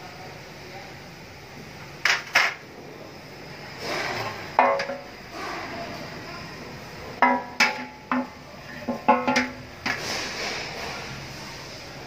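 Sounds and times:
sheet metal parts clanking on tray: 3.8s - 5.1s, 7.2s - 11.0s.

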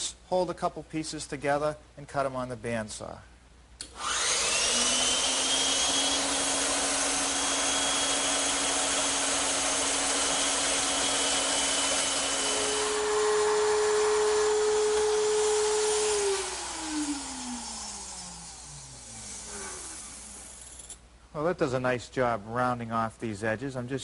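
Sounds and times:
router running: 3.8s - 21.0s
router winding down: 3.8s - 21.0s
bandsaw cutting wood: 4.0s - 21.0s.

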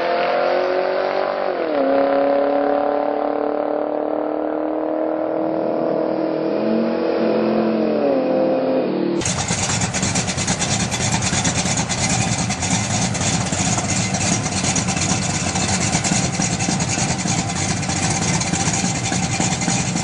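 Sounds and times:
car engine idling: 9.2s - 20.0s.

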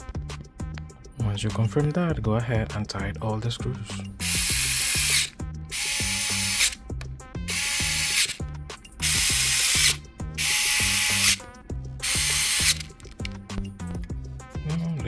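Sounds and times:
background music: 0.0s - 15.0s
electric screwdriver running: 4.2s - 6.8s, 7.5s - 8.4s, 9.0s - 11.4s, 12.0s - 12.9s.

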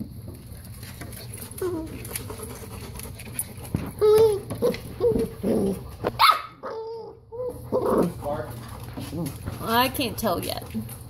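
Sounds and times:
puppies yipping and barking: 0.7s - 9.4s
puppy yelping: 4.0s - 8.4s.

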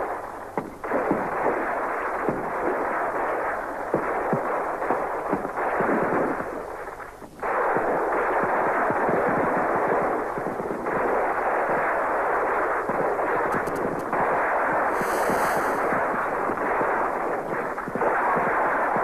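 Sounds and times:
muffled rifle and machine-gun fire: 7.4s - 19.0s.

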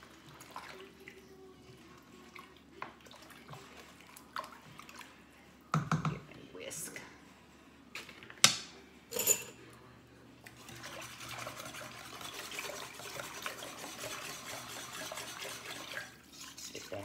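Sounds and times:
liquid swishing while stirred: 0.0s - 5.4s, 10.4s - 17.0s.

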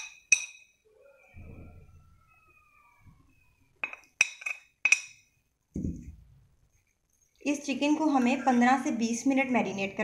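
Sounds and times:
spoon clinking against glass bowl: 0.0s - 0.8s, 3.8s - 5.3s.

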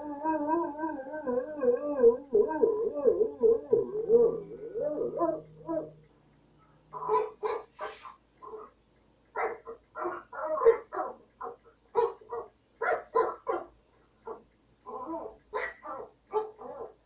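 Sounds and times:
small dog barking: 6.9s - 8.7s, 9.4s - 13.7s, 15.2s - 17.0s.

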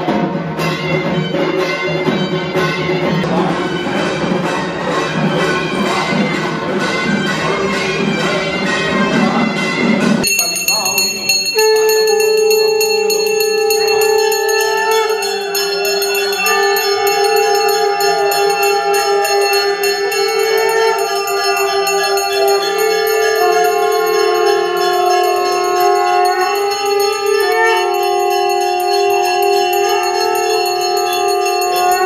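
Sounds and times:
hand bell ringing rapidly: 10.2s - 32.0s.

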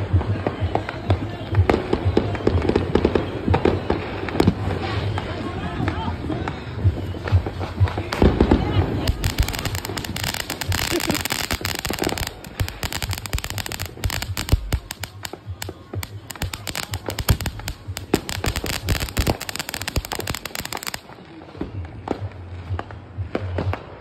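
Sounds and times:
fireworks crackling pops: 0.0s - 24.0s
fireworks hissing rush: 7.5s - 21.2s.

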